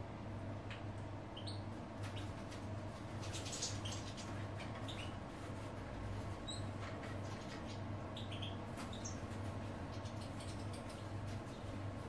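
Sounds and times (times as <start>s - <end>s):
steady low hum: 0.0s - 12.0s
goldfinches chirping: 1.3s - 2.3s, 3.4s - 5.2s, 7.7s - 11.7s.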